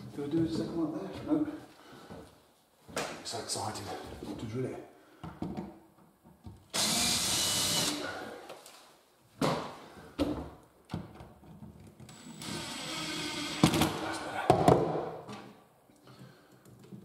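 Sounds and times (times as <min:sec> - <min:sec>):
drill clicks: 0:06.8 - 0:08.0
cordless drill running: 0:06.8 - 0:08.1, 0:12.1 - 0:13.6.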